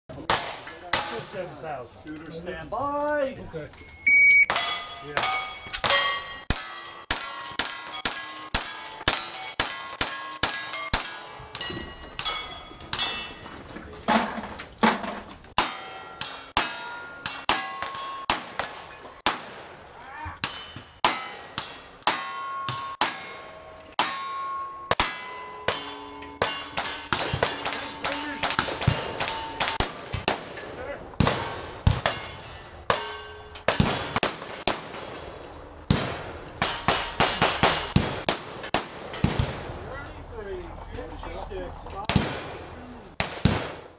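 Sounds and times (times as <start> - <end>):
steel target clanging: 4.4 - 19.3, 20.4 - 38.3
gunshots: 15.6 - 23.4, 24.9 - 39.8, 42.0 - 43.9.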